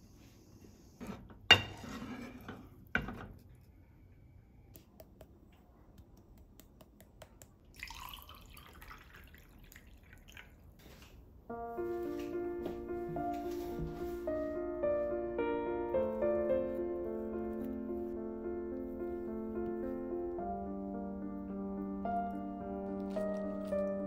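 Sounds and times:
tea pouring over ice: 0:07.7 - 0:10.7.

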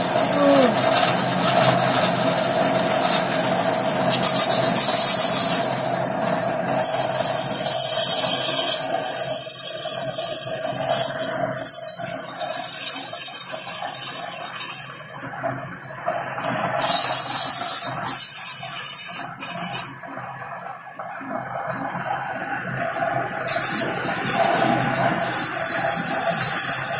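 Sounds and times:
turning tool scraping wood: 0:00.0 - 0:05.8, 0:06.8 - 0:15.3, 0:16.8 - 0:20.0, 0:23.4 - 0:26.9
wood lathe humming: 0:00.0 - 0:15.4, 0:22.3 - 0:26.9.

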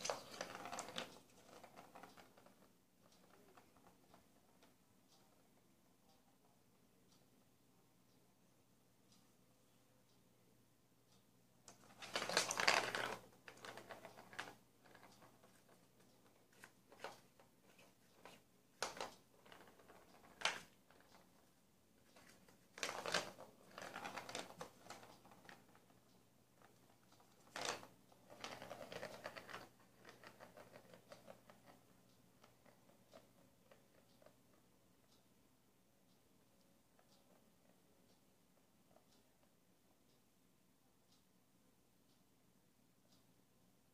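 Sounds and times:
ball rattling in plastic track: 0:00.0 - 0:04.0, 0:11.7 - 0:21.4, 0:22.1 - 0:25.9, 0:26.7 - 0:31.8.

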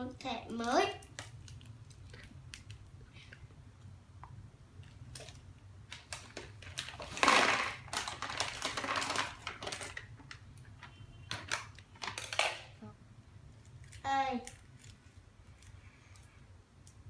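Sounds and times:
foil snack bag crinkling: 0:05.2 - 0:10.4
snack pouring into plastic box: 0:06.0 - 0:10.2.

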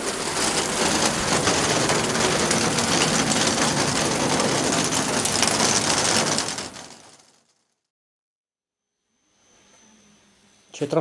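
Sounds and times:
rain on stone paving: 0:00.0 - 0:07.8.

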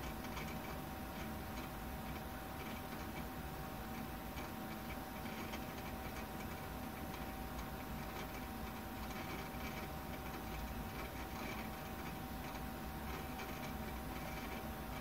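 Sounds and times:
hard drive seek clicks: 0:00.0 - 0:15.0.

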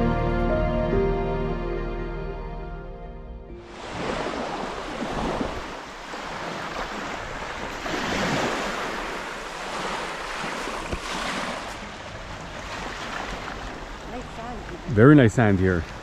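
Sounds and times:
wind on microphone: 0:03.7 - 0:12.7
small waves washing on sand: 0:03.7 - 0:16.0.

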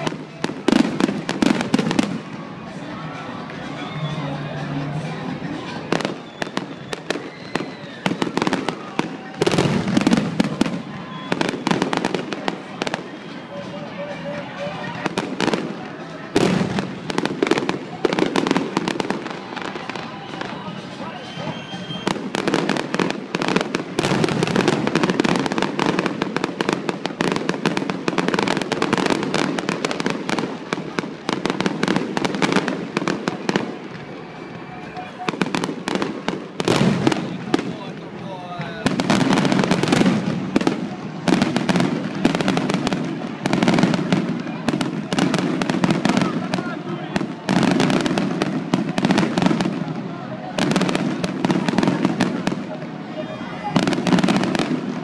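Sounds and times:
fireworks cracking and popping: 0:00.0 - 0:55.0.

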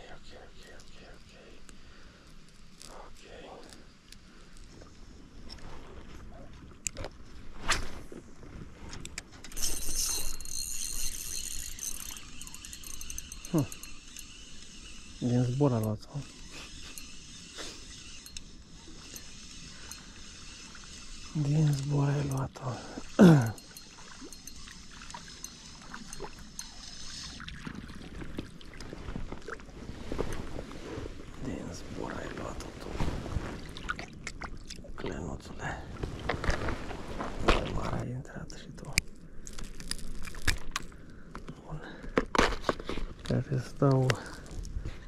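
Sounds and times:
reel clicking: 0:09.0 - 0:27.5
fishing reel gears whirring: 0:09.5 - 0:27.8
river water flowing: 0:09.6 - 0:15.2, 0:16.4 - 0:28.9.

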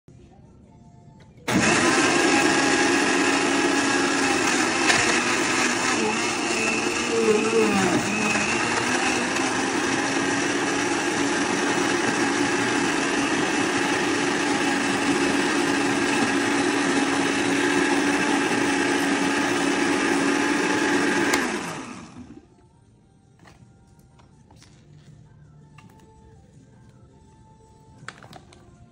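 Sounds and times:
blender motor running: 0:01.5 - 0:22.4.

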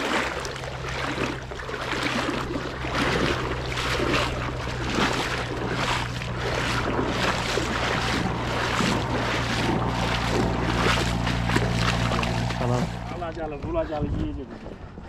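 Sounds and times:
fish splashing in water: 0:00.0 - 0:13.1.

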